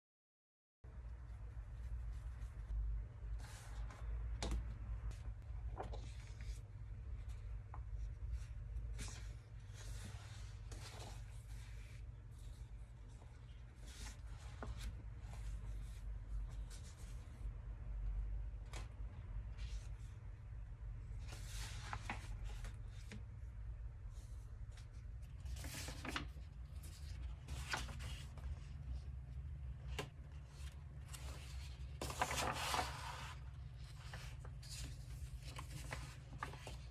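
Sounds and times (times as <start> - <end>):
low steady hum: 0.9 - 36.9
paper pages rustling: 3.4 - 17.5, 21.1 - 23.4, 24.2 - 36.9.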